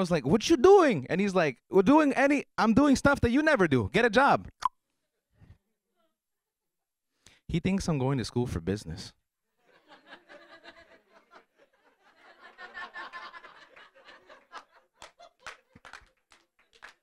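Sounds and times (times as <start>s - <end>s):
sharp claps: 15.0s - 17.0s.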